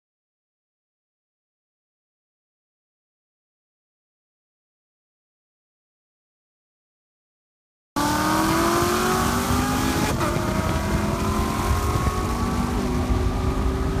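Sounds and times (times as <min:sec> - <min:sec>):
car engine at full throttle: 0:08.0 - 0:14.0.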